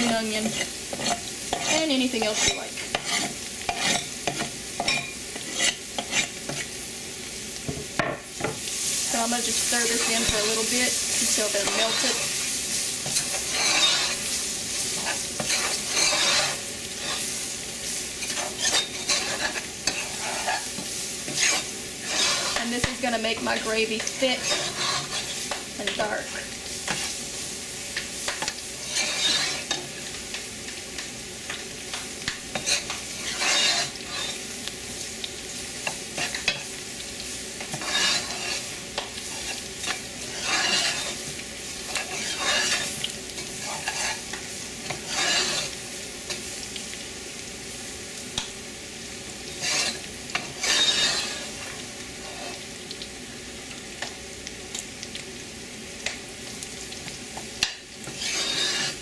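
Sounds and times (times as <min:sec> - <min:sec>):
spoon scraping pot: 0:00.0 - 0:06.7, 0:11.4 - 0:12.4, 0:13.0 - 0:14.3, 0:15.0 - 0:17.3, 0:18.2 - 0:23.1, 0:24.0 - 0:26.0, 0:28.3 - 0:29.9, 0:32.5 - 0:34.4, 0:37.6 - 0:41.2, 0:41.9 - 0:46.4, 0:49.6 - 0:51.5, 0:58.0 - 0:59.0
vegetables sizzling: 0:00.0 - 0:59.0.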